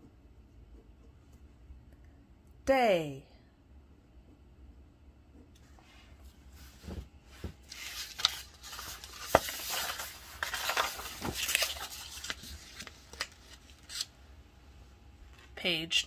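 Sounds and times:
paper pages rustling: 6.6s - 14.1s.

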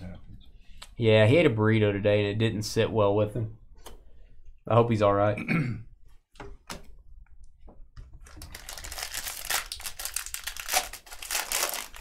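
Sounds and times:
foil wrapper crinkling: 8.2s - 12.0s.

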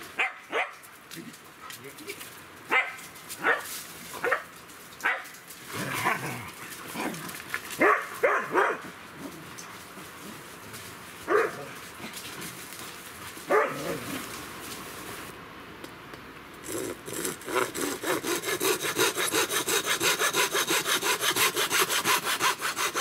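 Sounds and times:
dog barking: 0.2s - 0.8s, 2.7s - 5.3s, 7.8s - 8.8s, 11.3s - 11.7s, 13.5s - 14.0s.

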